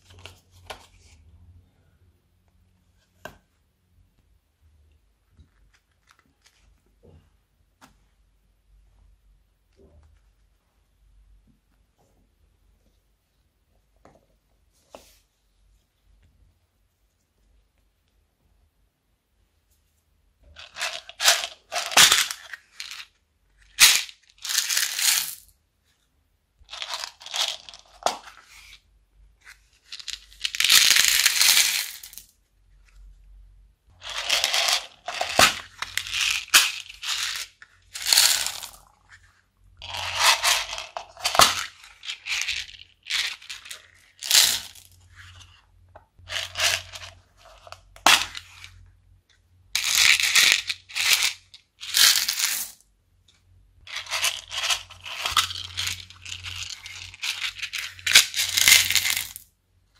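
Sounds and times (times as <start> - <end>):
beads rattling in plastic cases: 20.5 - 25.5, 26.7 - 28.4, 29.8 - 32.3, 34.0 - 39.1, 39.8 - 45.0, 46.2 - 48.7, 49.8 - 52.8, 53.8 - 59.5.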